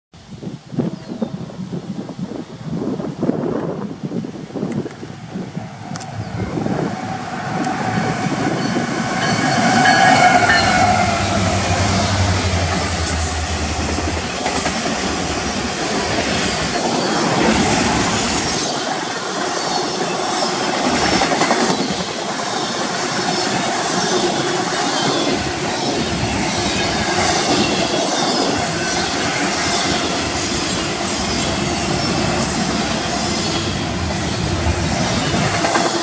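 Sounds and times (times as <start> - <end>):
locomotive engine drone: 4.9 - 19.2
train wheels clacking over rail joints: 20.8 - 25.4, 32.3 - 36.0.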